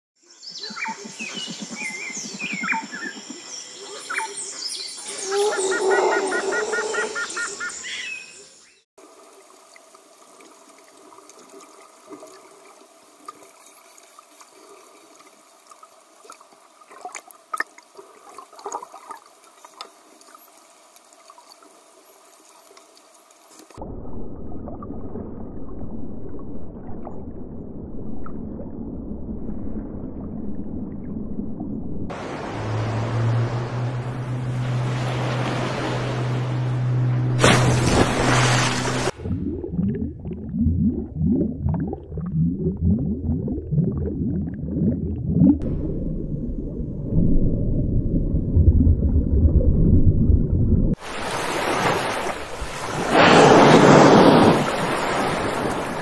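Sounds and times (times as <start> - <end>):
dolphin whistles: 5.0 - 8.2
low rushing water: 32.1 - 56.0.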